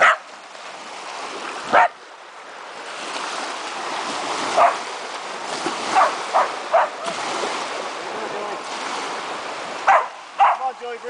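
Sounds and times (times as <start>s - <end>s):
dog barking: 0.0s - 0.3s, 1.7s - 2.0s, 4.5s - 4.8s, 5.9s - 7.1s, 9.8s - 10.7s
small waves washing onto shore: 0.0s - 11.0s.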